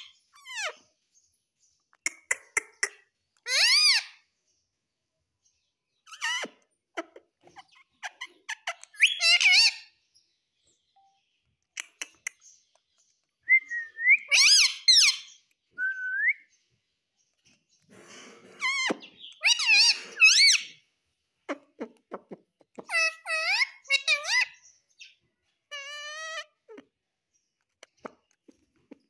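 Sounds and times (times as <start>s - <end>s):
parakeet whistling calls: 13.6s - 16.4s.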